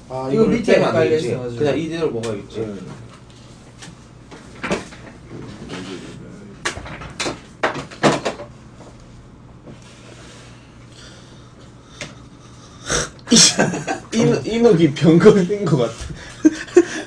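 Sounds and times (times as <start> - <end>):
dishes clattering on table: 6.7 - 8.5.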